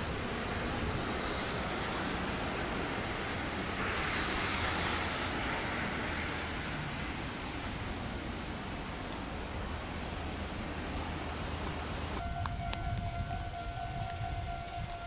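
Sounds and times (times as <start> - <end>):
electric train running on track: 12.2 - 15.0.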